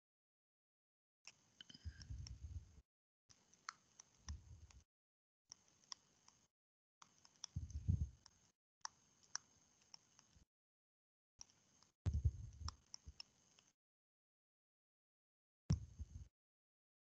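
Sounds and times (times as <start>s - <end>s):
dull low thumps: 12.1s - 12.7s.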